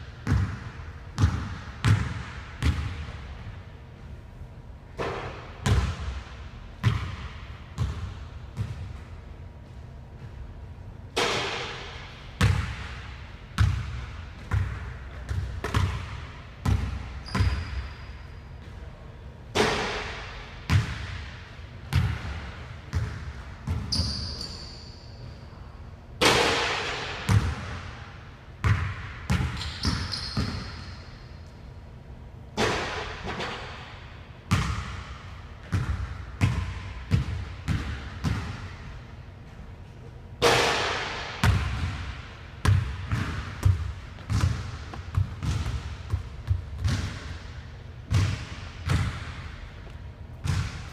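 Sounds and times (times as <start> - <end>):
sneakers squeaking on floor: 17.2 - 18.8, 23.7 - 25.3, 29.5 - 31.2
basketball bouncing on hardwood: 42.7 - 47.3, 50.4 - 50.8.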